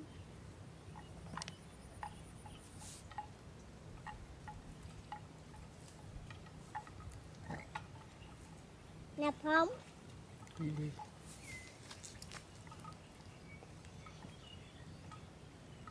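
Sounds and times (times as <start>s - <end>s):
animal neck bell clinking: 4.0s - 8.7s, 10.3s - 15.9s.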